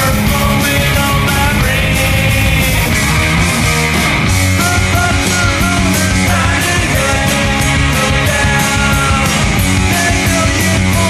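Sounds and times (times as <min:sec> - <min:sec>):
loud punk rock music: 0:00.0 - 0:11.0.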